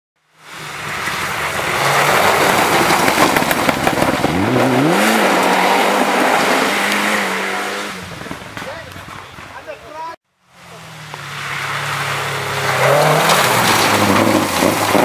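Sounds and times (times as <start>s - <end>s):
gravel spattering from tyres: 0.4s - 7.3s, 11.0s - 15.0s
rally car engine at high revs: 0.4s - 8.6s, 10.6s - 15.0s.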